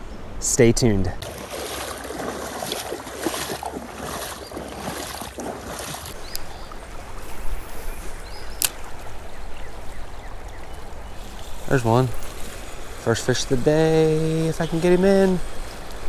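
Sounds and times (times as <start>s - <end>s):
running creek: 0.0s - 16.0s
wading steps splashing in water: 1.2s - 7.4s.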